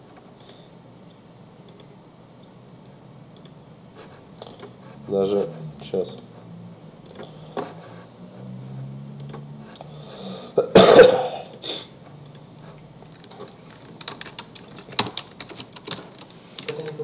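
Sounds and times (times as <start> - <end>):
person coughing: 10.6 - 11.5
typing on computer keyboard: 12.2 - 17.0.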